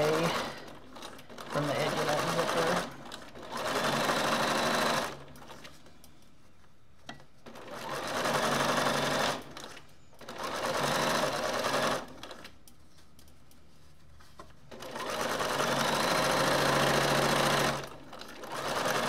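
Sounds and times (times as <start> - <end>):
sewing machine stitching: 0.0 - 5.6, 7.4 - 12.5, 14.7 - 19.0.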